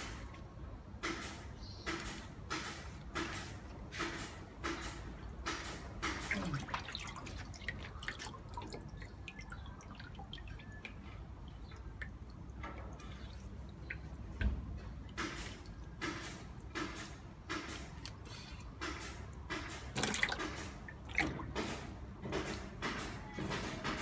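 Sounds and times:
water splashing in a plastic tub: 1.1 - 24.0
water dripping: 4.6 - 22.7.

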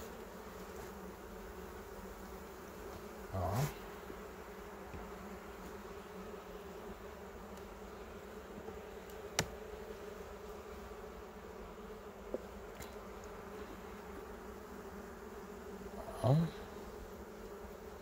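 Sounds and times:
bees buzzing: 0.0 - 18.0
hive tool clicking: 9.0 - 9.6.

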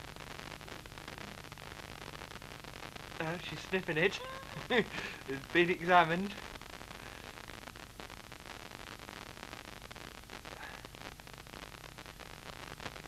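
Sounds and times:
faint crackles: 0.0 - 13.0
steady radio hiss: 0.0 - 13.0.

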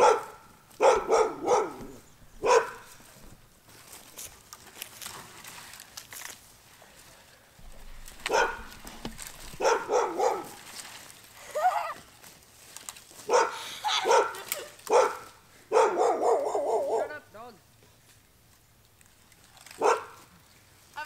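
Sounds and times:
dog barking: 0.0 - 2.9, 8.2 - 8.8, 9.5 - 10.6, 13.3 - 17.1, 19.8 - 20.2.

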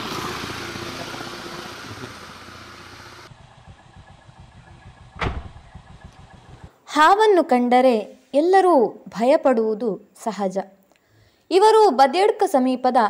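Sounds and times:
motorcycle engine running: 0.0 - 6.7
sharp knock: 5.1 - 6.6.

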